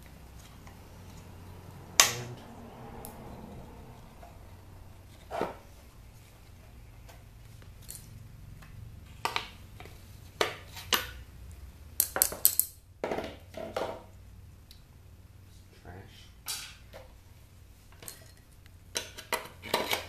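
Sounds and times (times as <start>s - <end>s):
metal parts knocking and clinking: 7.8s - 8.1s, 12.0s - 12.8s.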